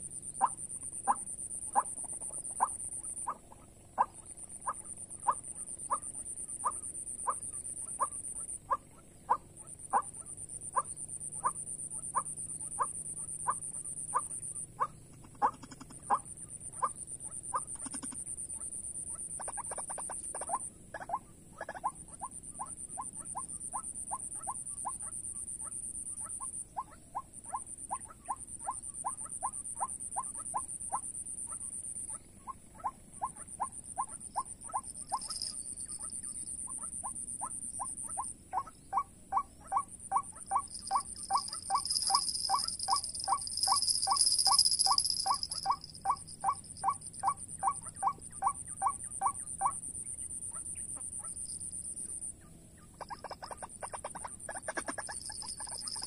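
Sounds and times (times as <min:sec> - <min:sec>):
bird kwak calls: 0:01.8 - 0:25.1, 0:26.2 - 0:51.3, 0:53.0 - 0:56.0
high shrill buzz: 0:40.6 - 0:47.2.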